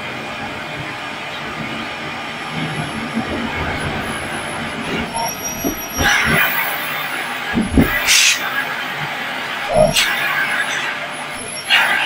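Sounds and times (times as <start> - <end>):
knocks: 7.6 - 8.1.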